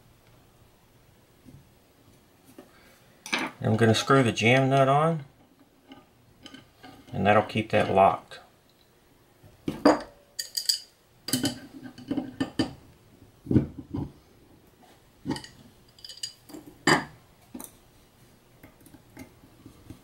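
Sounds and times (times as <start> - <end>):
steel tools clinking on metal: 10.0 - 11.6, 15.3 - 16.6.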